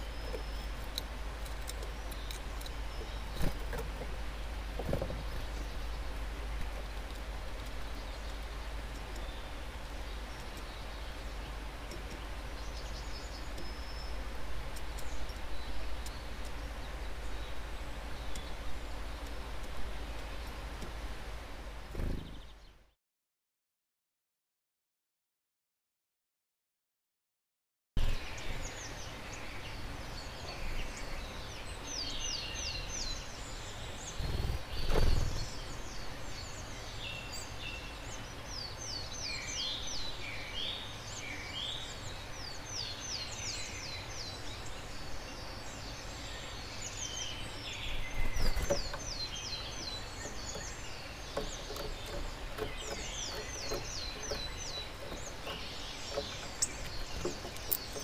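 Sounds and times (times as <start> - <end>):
steady outdoor hiss: 0.0 - 23.0, 28.0 - 58.0
bird chirps: 30.2 - 58.0.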